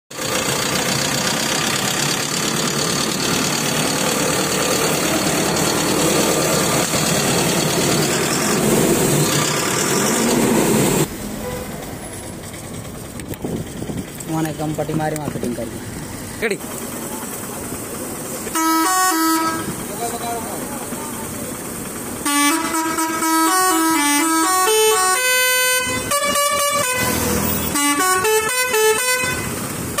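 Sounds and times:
tractor diesel engine running: 0.1 - 30.0
musical air horn playing tune: 18.5 - 19.8, 22.2 - 30.0.

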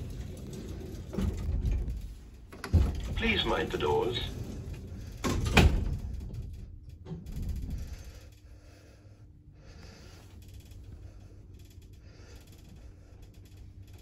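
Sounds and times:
lift rumble and hum: 0.0 - 14.0.

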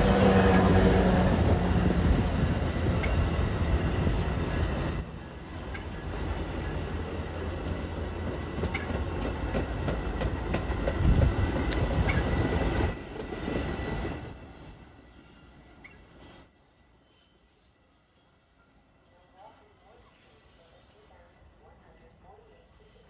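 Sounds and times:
low train rumble: 0.0 - 16.2
train wheels clicking over rail joints: 7.6 - 14.2.

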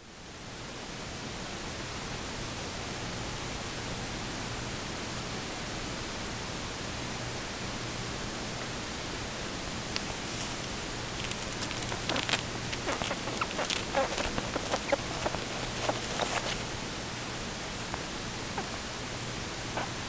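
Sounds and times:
faint low hum: 0.0 - 20.0
steady hiss: 0.0 - 20.0.

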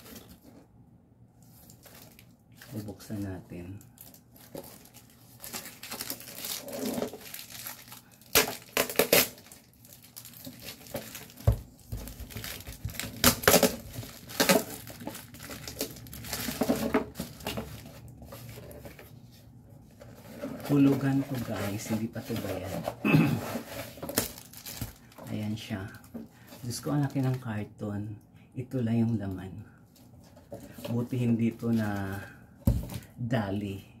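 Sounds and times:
cardboard and plastic ripping: 4.0 - 19.0, 20.1 - 25.1.

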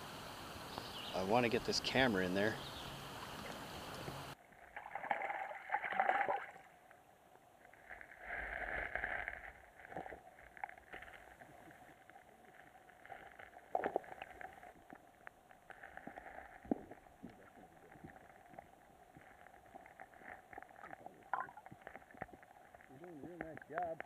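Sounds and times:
faint underwater water noise: 0.0 - 24.0.

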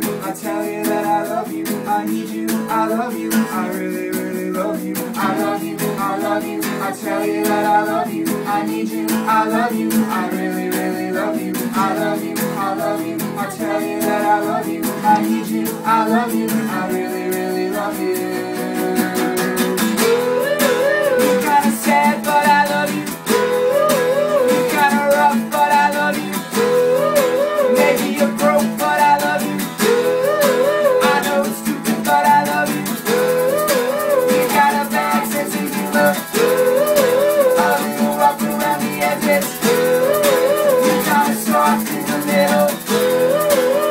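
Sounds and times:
acoustic guitars strummed: 0.0 - 43.9
people singing: 0.0 - 43.9
short wordless melody: 16.2 - 41.5.

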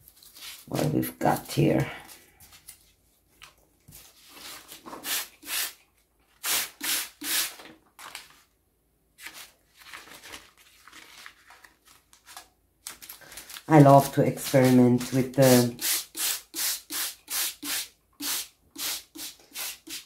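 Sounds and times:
paper and lace rustling: 0.0 - 5.0, 7.8 - 8.5, 9.2 - 15.4.

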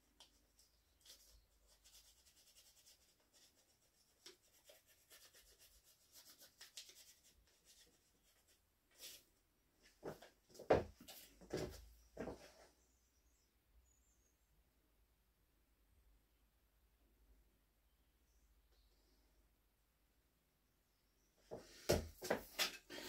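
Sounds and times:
pencil scratching on paper: 1.1 - 8.5.

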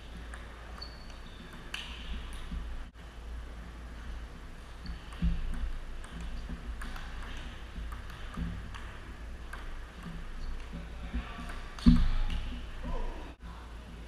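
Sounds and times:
table tennis ball clicking: 4.8 - 12.8.

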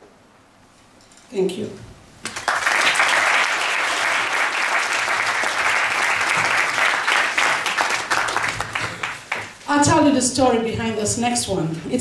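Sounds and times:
audience applauding: 2.2 - 9.6.

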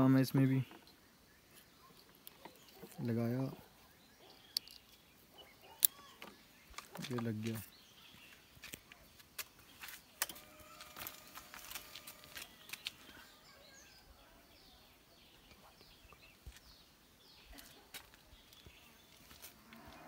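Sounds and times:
faint bird chirps: 0.1 - 20.0.

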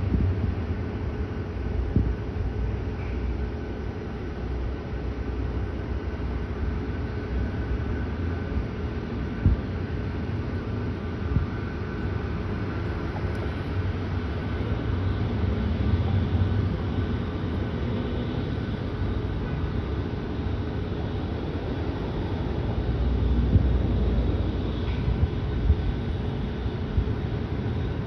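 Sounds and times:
jet engines rumbling: 0.0 - 28.0
faint thin whine: 5.8 - 28.0.

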